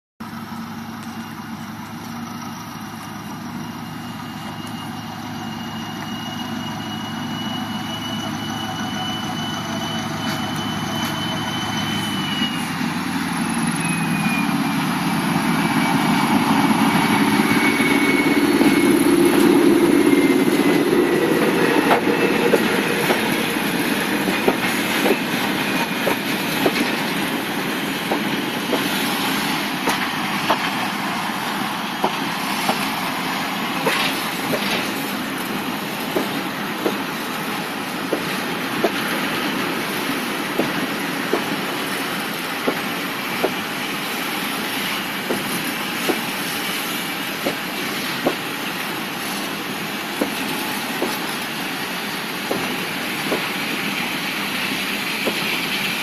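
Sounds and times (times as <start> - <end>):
diesel locomotive passing: 0.2 - 56.0
high whine dropping in pitch: 3.9 - 25.9
wagon wheels clicking over rail joints: 20.7 - 30.8.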